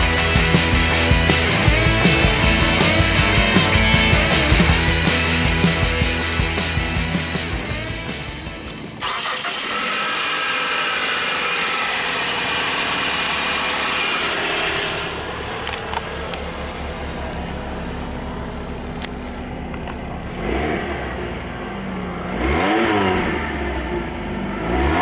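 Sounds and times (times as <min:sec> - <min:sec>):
background music: 0:00.0 - 0:09.2
car engine starting and idling: 0:00.0 - 0:25.0
low exhaust pulse at idle: 0:11.5 - 0:22.3.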